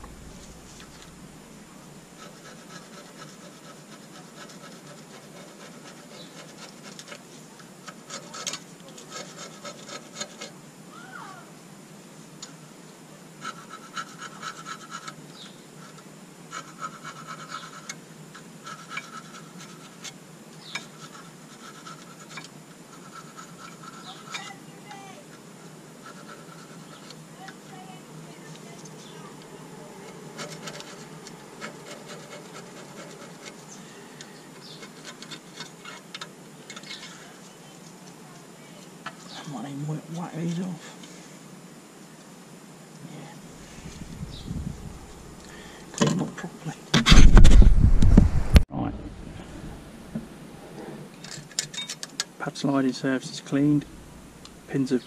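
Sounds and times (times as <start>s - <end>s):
hand tool scraping metal: 15.8s - 24.6s, 26.0s - 27.6s, 30.0s - 37.2s.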